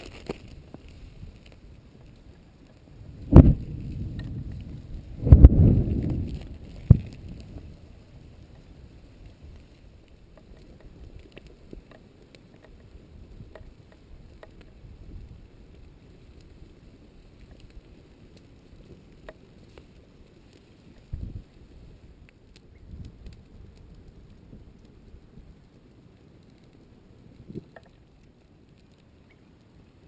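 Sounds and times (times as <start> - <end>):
lava crackling and ticking: 0.0 - 30.0
wind rumble on microphone: 0.0 - 30.0
sharp pop: 3.3 - 3.7.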